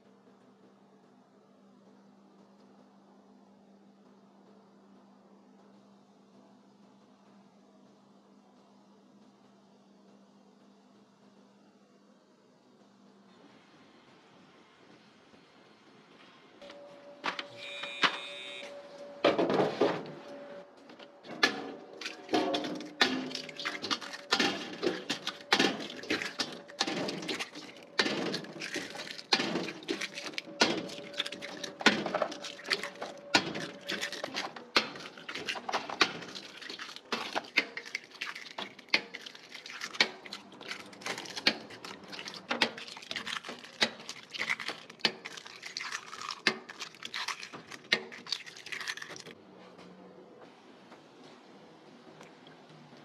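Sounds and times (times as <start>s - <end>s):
eggs cracking against metal bowl: 21.4s - 49.4s.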